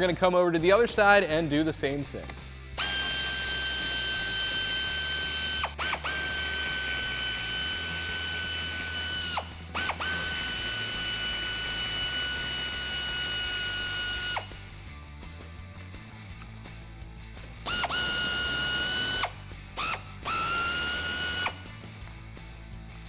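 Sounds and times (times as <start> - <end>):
pneumatic air ratchet whining: 2.8 - 14.6, 17.6 - 21.6.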